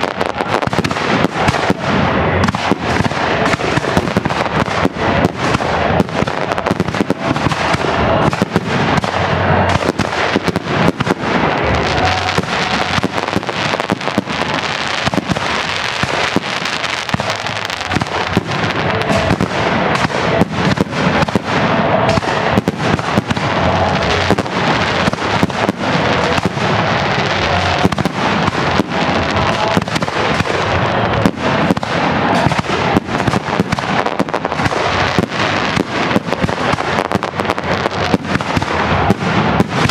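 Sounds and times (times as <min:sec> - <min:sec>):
fireworks bursting: 0:00.0 - 0:39.9.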